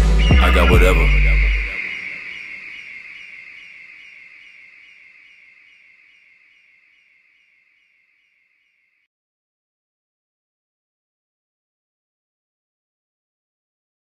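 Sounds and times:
high electronic chirping: 0:00.0 - 0:03.0.

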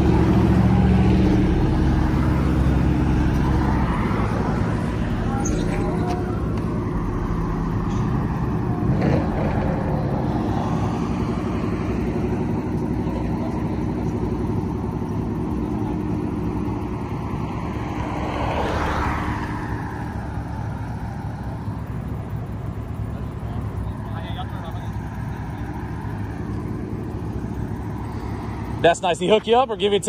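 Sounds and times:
road traffic: 0:00.0 - 0:30.0
vehicle engines idling: 0:00.0 - 0:30.0
car passing close by: 0:16.8 - 0:21.4.

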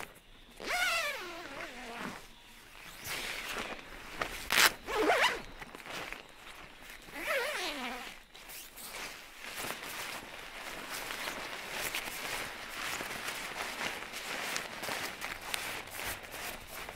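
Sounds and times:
tent zipper being pulled: 0:00.6 - 0:06.2, 0:07.0 - 0:16.9.

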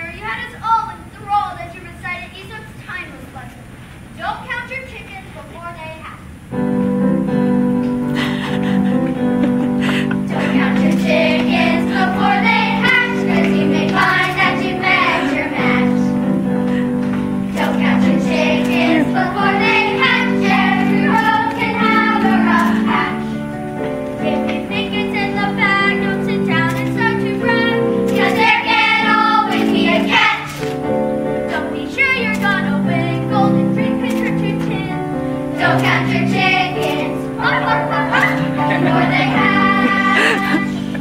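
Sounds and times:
instrumental accompaniment: 0:06.5 - 0:41.0
children singing together: 0:09.4 - 0:16.2, 0:17.4 - 0:23.5, 0:24.2 - 0:30.6, 0:31.5 - 0:41.0.

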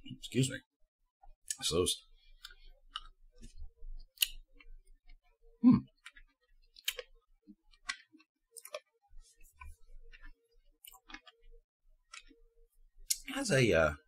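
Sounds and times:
wet mouth clicks and smacks: 0:06.8 - 0:07.1.

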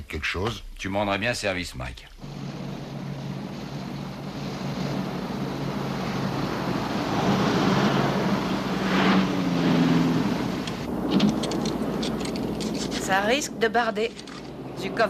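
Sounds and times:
cars driving past: 0:02.2 - 0:13.0.

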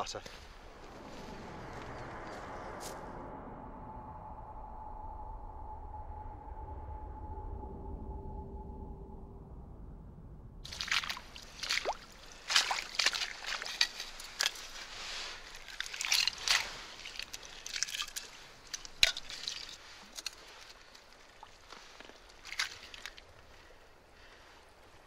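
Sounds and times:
seawater sloshing and splashing: 0:10.6 - 0:23.7.

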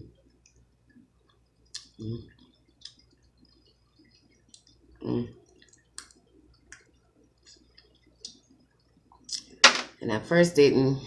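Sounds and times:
crab shell cracking: 0:05.6 - 0:08.4.

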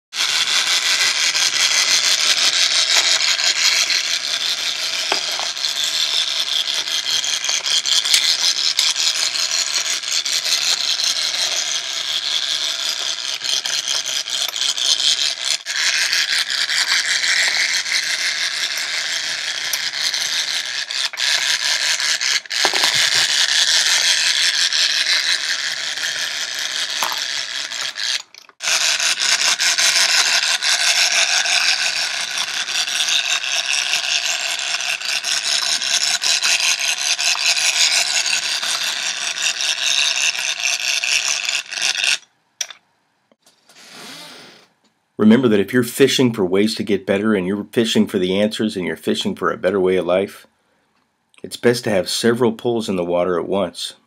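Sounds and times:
toy motor and gears rattling: 0:00.1 - 0:42.8.

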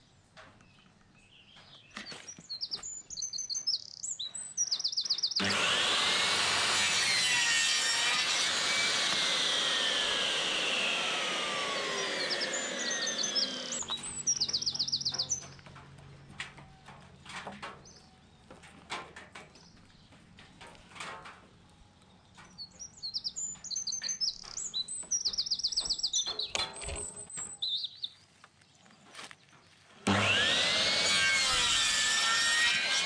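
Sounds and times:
birds chirping: 0:00.0 - 0:05.6, 0:06.8 - 0:32.8
mitre saw cutting wood: 0:05.4 - 0:14.4, 0:30.0 - 0:33.0.

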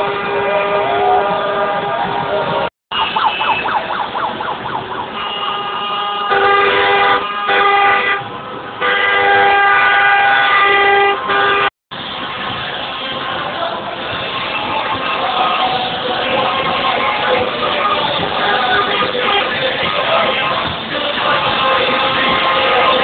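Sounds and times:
car horns honking: 0:00.0 - 0:03.8, 0:05.1 - 0:16.8, 0:17.8 - 0:23.0
warbling siren-like tone: 0:00.7 - 0:05.2.

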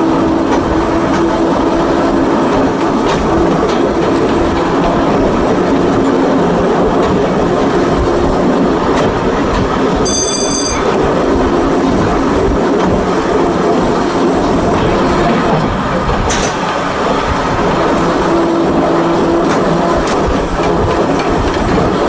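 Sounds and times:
electric railway car running: 0:00.0 - 0:22.0
wheels clicking over rail joints: 0:18.9 - 0:22.0.

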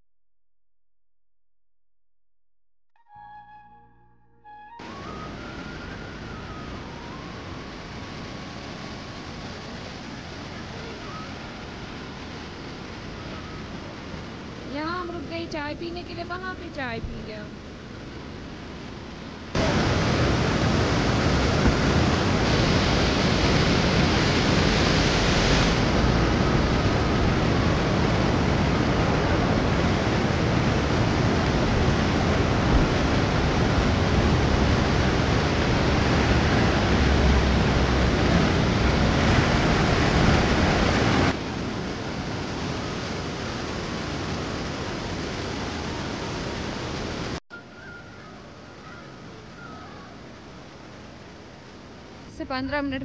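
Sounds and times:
fast-flowing water rushing: 0:04.8 - 0:16.8, 0:19.5 - 0:47.4.

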